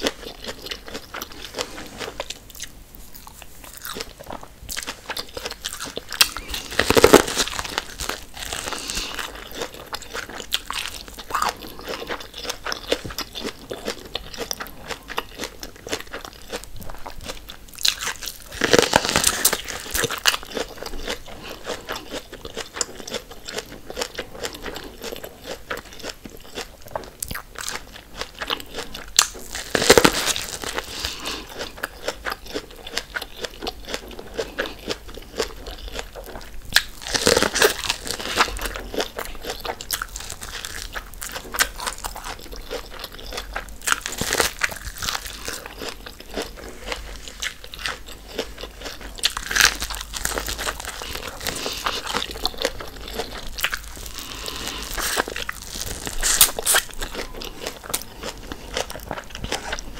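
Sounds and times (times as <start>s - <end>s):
wet chewing: 0.0s - 59.9s
crunching bites into corn: 4.8s - 13.9s, 28.8s - 33.1s, 49.2s - 58.9s.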